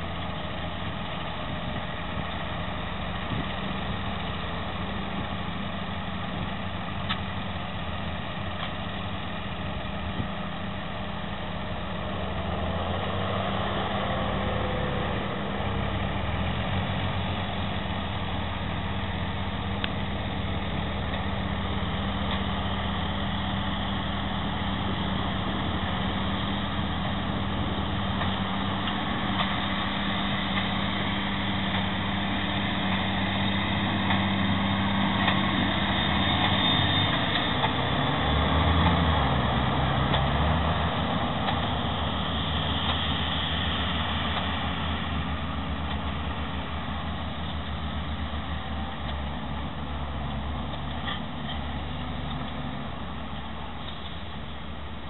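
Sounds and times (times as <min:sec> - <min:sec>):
diesel tractor engine running: 0:00.0 - 0:55.0.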